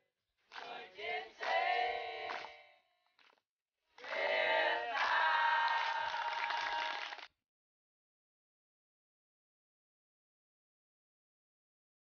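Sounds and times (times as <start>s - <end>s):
hands clapping: 0.5s - 3.4s, 4.0s - 7.4s.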